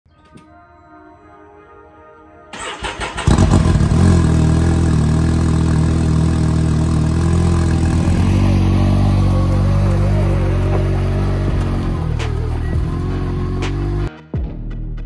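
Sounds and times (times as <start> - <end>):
vehicle engine starting and running: 2.5 - 14.1.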